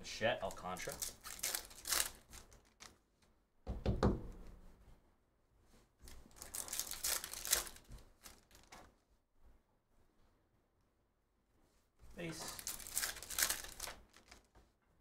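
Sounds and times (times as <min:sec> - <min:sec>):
cards being handled: 0:00.5 - 0:03.0, 0:06.0 - 0:08.9, 0:12.2 - 0:14.7
wrapper tearing and crinkling: 0:00.5 - 0:03.0, 0:06.1 - 0:08.8, 0:12.4 - 0:14.5.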